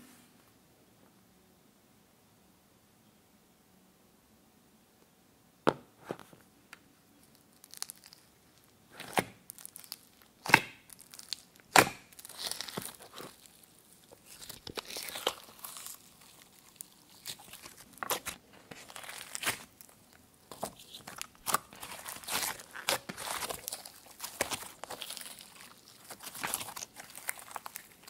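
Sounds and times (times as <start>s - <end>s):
slime fine crackling: 7.3s - 28.0s
slime popping and snapping: 7.6s - 8.2s, 9.1s - 13.6s, 14.2s - 28.0s.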